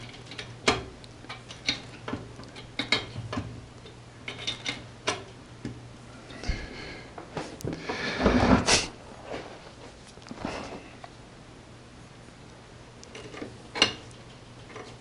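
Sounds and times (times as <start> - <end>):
heating pipes clicking: 0.0 - 8.5, 13.0 - 15.0
steady low hum: 0.0 - 15.0.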